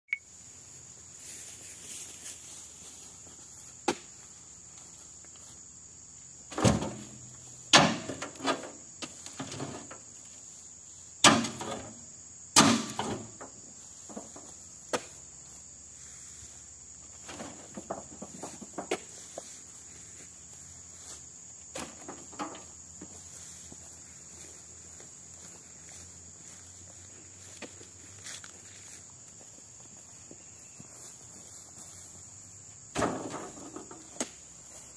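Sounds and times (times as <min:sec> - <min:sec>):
high insect drone: 0:00.2 - 0:34.9
fruit bunches thudding into trailer: 0:06.5 - 0:10.0, 0:11.2 - 0:12.0, 0:12.6 - 0:15.1, 0:17.2 - 0:19.1, 0:21.7 - 0:23.2, 0:32.9 - 0:34.3.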